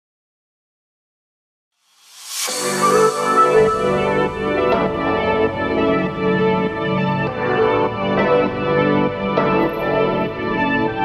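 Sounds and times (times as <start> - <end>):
background music with held chords: 2.5 - 11.0
deep bass: 3.5 - 8.7.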